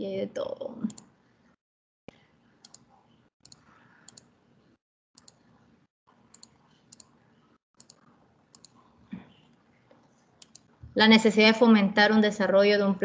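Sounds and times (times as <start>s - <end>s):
computer mouse clicks: 0.9s - 1.1s, 2.6s - 4.3s, 5.2s - 5.5s, 6.3s - 7.2s, 7.8s - 9.6s, 10.4s - 10.7s.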